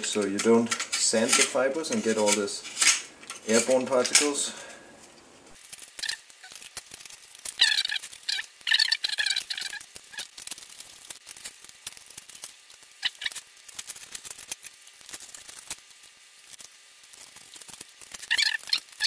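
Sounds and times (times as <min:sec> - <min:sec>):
knife crackling through fibreglass: 0:05.5 - 0:19.0
blade squeaking in resin: 0:05.8 - 0:19.0.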